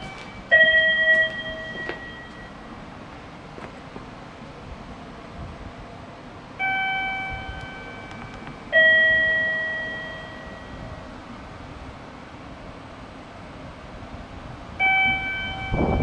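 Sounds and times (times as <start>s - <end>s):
two-note ding-dong chime: 0.0s - 2.6s, 6.6s - 11.0s.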